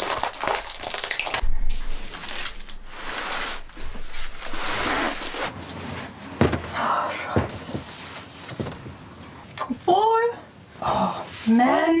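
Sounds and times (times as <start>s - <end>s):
cardboard scraping and rustling: 2.0s - 6.2s.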